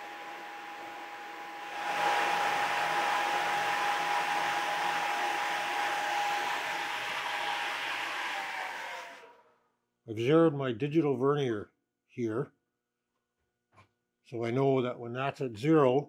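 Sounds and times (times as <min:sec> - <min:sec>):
resurfacing machine whine: 0:00.0 - 0:09.3.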